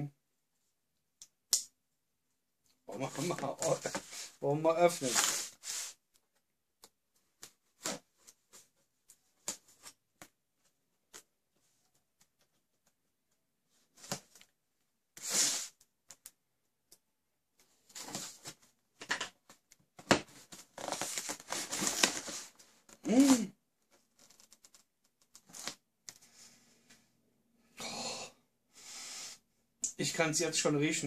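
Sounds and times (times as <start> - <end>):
cardboard flaps scraping and rustling: 20.1 - 22.6.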